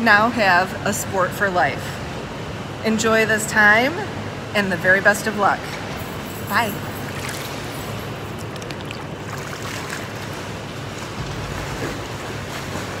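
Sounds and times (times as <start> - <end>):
indoor pool hall background rush: 0.0 - 13.0
pool water splashing: 6.6 - 13.0.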